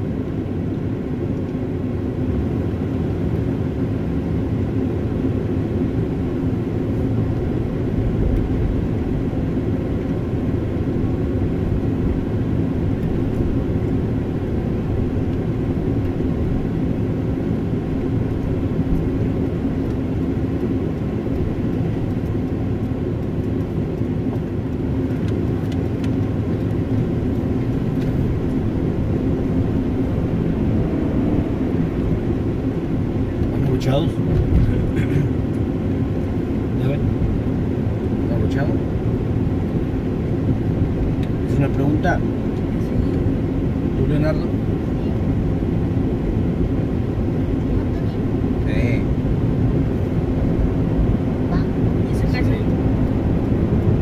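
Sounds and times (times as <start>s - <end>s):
car engine and tyre noise: 0.0s - 54.0s.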